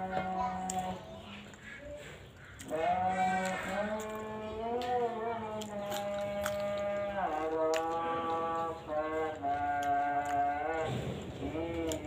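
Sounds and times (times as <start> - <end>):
voice chanting: 0.0 - 12.0
cucumber being bitten and chewed: 2.5 - 12.0.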